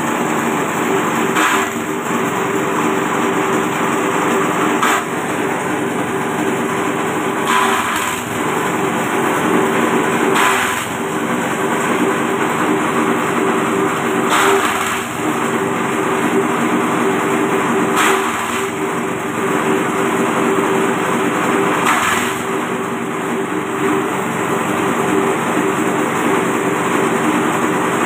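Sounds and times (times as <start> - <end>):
blades chopping stalks: 1.3 - 1.8, 4.7 - 5.3, 7.4 - 8.4, 10.3 - 11.1, 14.3 - 15.3.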